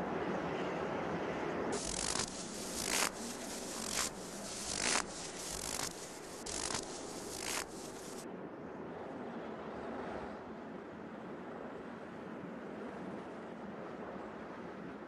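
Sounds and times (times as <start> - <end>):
hand saw rasping through log: 1.8 - 8.2.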